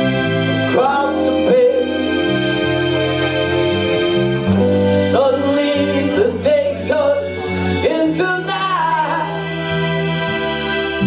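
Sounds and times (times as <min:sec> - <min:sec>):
acoustic guitar: 0:00.0 - 0:11.0
electric bass guitar: 0:00.0 - 0:11.0
sustained keyboard chord: 0:00.0 - 0:11.0
man singing: 0:00.7 - 0:03.4, 0:04.8 - 0:09.5.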